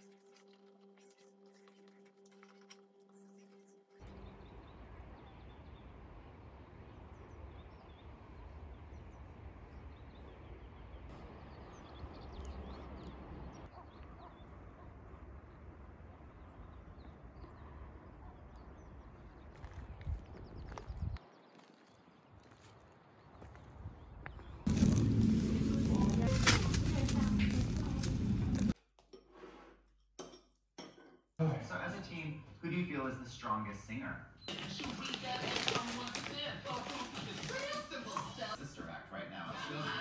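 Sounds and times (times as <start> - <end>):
small birds chirping: 0.0 - 28.5
wind rumbling on microphone: 19.1 - 21.2
low humming tone: 24.7 - 28.8.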